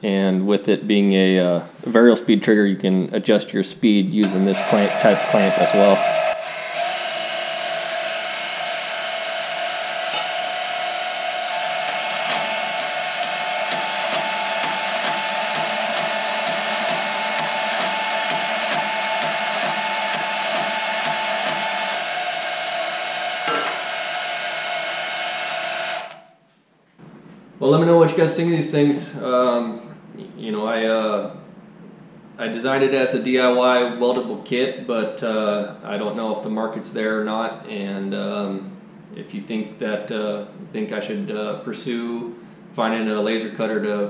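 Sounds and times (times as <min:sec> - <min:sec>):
rasping cutting noise: 0:04.2 - 0:26.2
bandsaw motor running: 0:04.2 - 0:26.3
high whine: 0:04.2 - 0:26.4.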